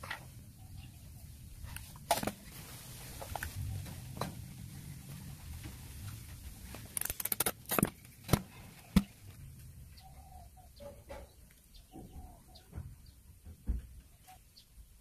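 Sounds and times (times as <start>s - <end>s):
faint bird calls: 9.8s - 13.2s.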